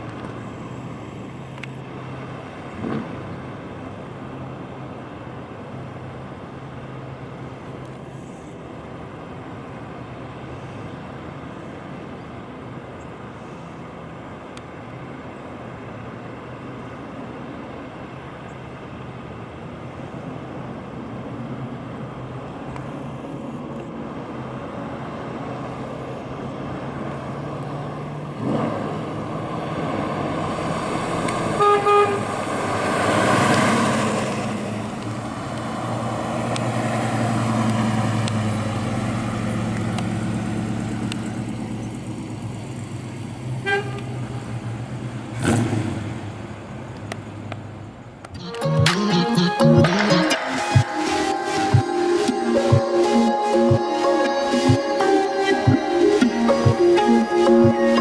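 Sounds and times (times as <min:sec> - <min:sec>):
car engine driving: 0:00.0 - 0:58.0
car horn honks: 0:31.5 - 0:32.4, 0:43.6 - 0:44.3.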